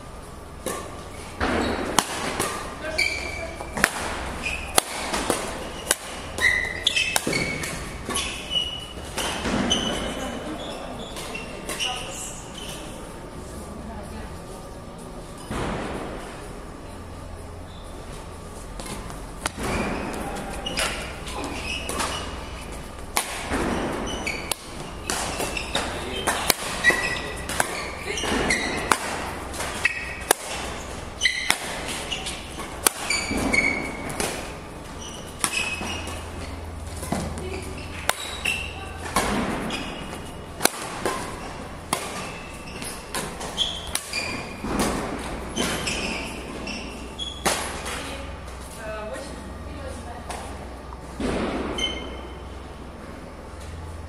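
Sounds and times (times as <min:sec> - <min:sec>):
shoes squeaking on court floor: 0:00.5 - 0:13.6, 0:17.0 - 0:51.0, 0:51.6 - 0:54.0
racket striking shuttlecock: 0:01.9 - 0:02.7, 0:03.8 - 0:08.4, 0:21.8 - 0:34.6, 0:35.2 - 0:46.0.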